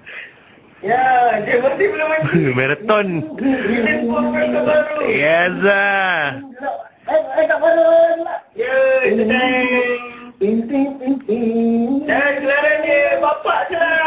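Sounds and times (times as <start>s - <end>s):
man singing: 0.8s - 14.0s.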